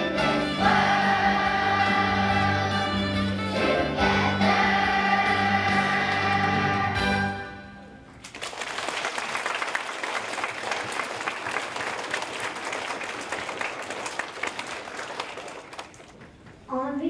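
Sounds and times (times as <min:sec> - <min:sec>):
children's choir singing: 0:00.0 - 0:07.6
audience applauding: 0:08.2 - 0:16.7.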